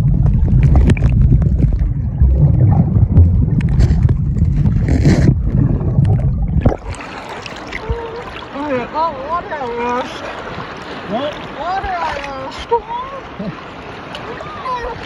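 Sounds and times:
muffled underwater rumble: 0.0s - 7.0s
underwater knocks: 0.0s - 7.0s.

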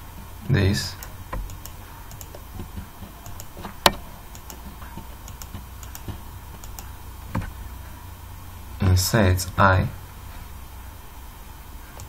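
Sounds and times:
low steady hum: 0.0s - 12.0s
computer mouse clicks: 1.0s - 7.5s.

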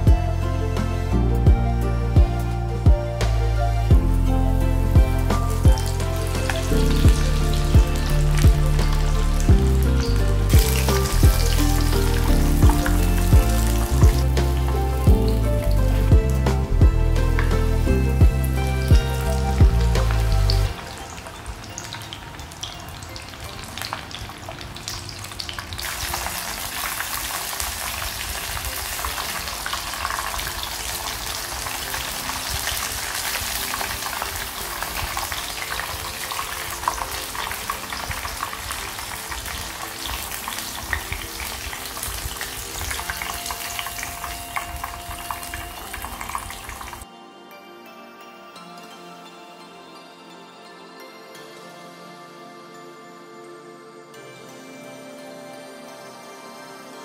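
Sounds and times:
soft background music: 0.0s - 57.0s
food deep-frying in oil: 4.2s - 47.0s.

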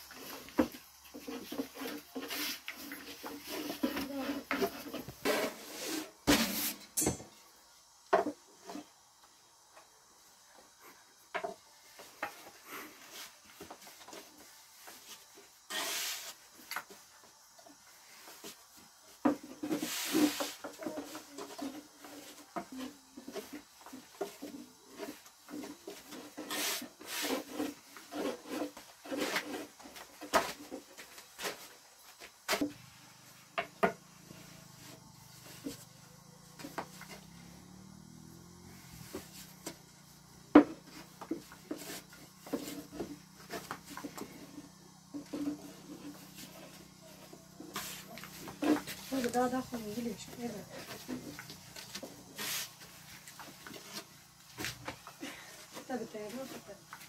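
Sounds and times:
rolling pin rubbing on dough: 0.1s - 6.7s, 24.3s - 30.1s.

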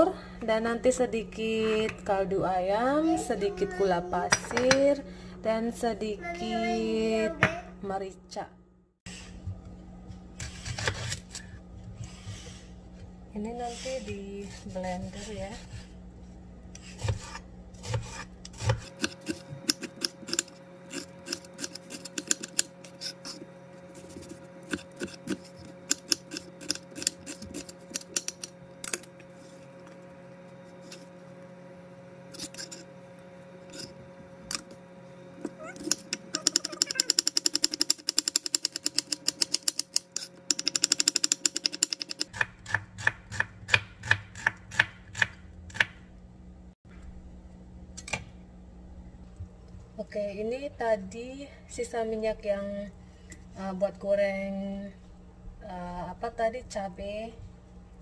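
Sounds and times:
knife chopping on plastic board: 41.3s - 46.0s.

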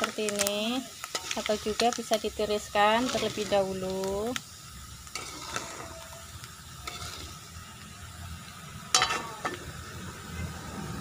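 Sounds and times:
oil sizzling in wok: 0.0s - 11.0s
metal spatula scraping wok: 0.1s - 7.8s, 8.9s - 9.8s.

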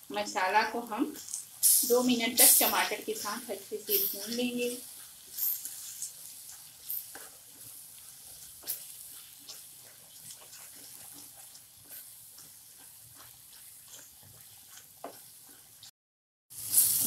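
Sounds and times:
masala sizzling in a pan: 0.0s - 15.9s, 16.5s - 17.0s
spatula scraping and tapping pan: 2.4s - 15.9s.

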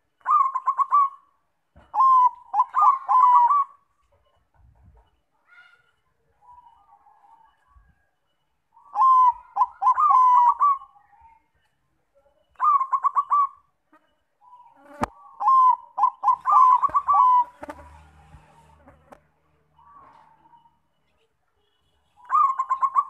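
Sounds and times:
dove cooing: 0.2s - 3.8s, 8.8s - 11.0s, 12.6s - 13.7s, 14.4s - 19.2s, 22.2s - 23.0s.

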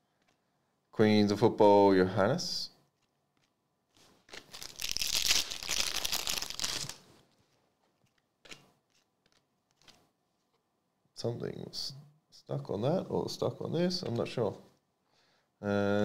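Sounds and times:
foil wrapper tearing: 4.2s - 7.0s.

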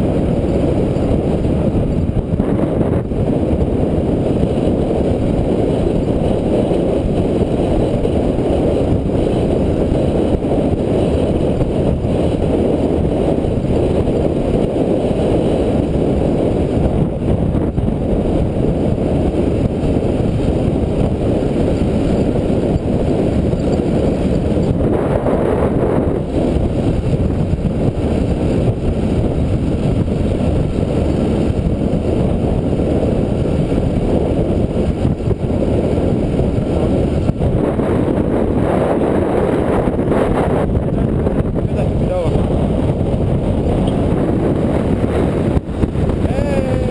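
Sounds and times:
motorcycle engine running: 0.0s - 46.9s
wind buffeting microphone: 0.0s - 46.9s.

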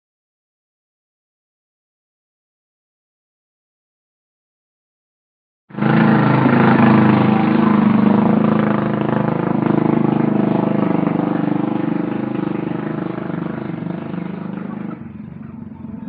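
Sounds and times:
motor engine running: 5.7s - 16.0s.

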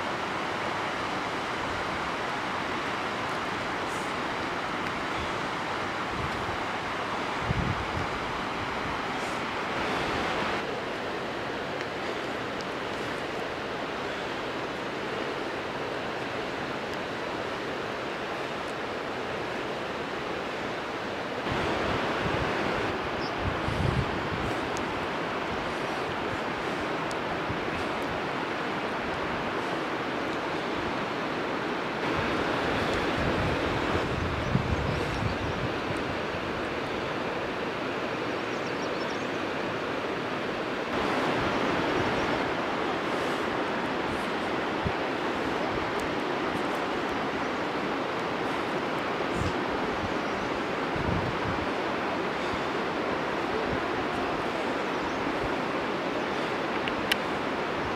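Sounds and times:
wind buffeting microphone: 0.0s - 10.7s, 21.4s - 31.2s, 31.9s - 38.2s, 40.8s - 57.9s
river water flowing: 0.0s - 57.9s
steady outdoor rushing noise: 0.0s - 57.9s.

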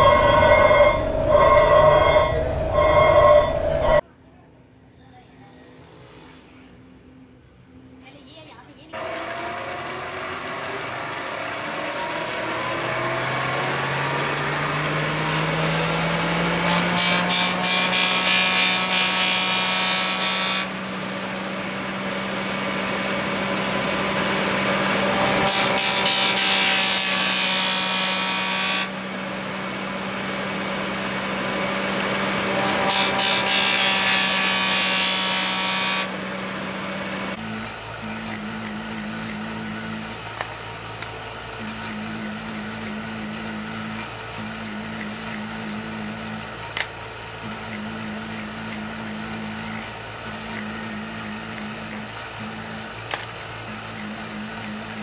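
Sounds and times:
motor hum: 9.0s - 55.0s
wood grinding against spinning wheel: 12.6s - 55.0s.

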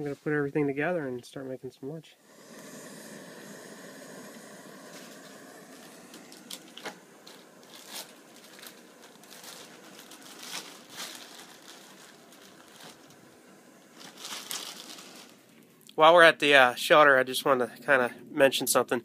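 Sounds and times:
camp stove burner hissing: 2.2s - 15.7s
plastic bag crinkling: 4.3s - 15.6s.

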